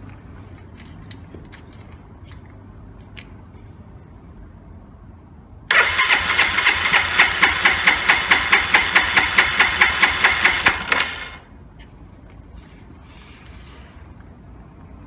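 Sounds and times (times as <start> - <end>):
electric starter cranking engine: 5.7 - 11.5
starter whine: 5.7 - 11.5.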